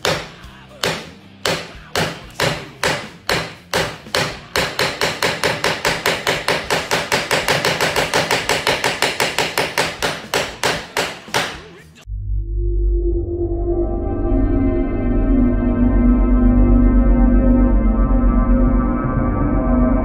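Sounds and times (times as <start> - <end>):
screwdriver striking metal plate: 0.0 - 11.7.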